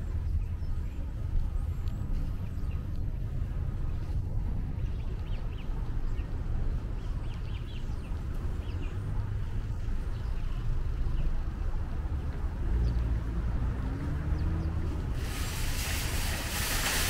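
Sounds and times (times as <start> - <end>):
wind on microphone: 0.0 - 13.3
small birds chirping: 0.0 - 17.0
traffic rumble: 0.0 - 17.0.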